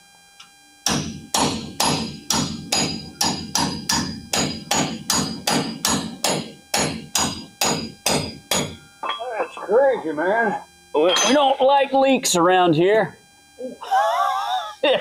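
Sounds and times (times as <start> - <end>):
hammer tapping a chisel on metal: 0.9 - 9.6.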